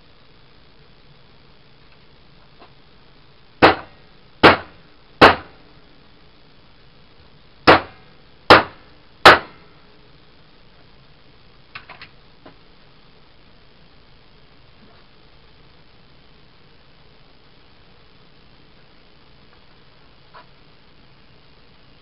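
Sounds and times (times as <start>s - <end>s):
hammer striking metal punch: 3.6s - 5.5s, 7.7s - 9.6s.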